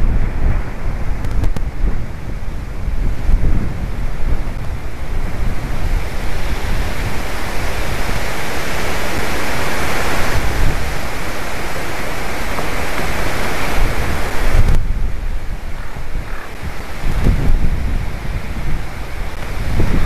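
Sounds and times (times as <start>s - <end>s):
wind buffeting microphone: 0.0s - 20.0s
wind rushing through trees: 0.0s - 20.0s.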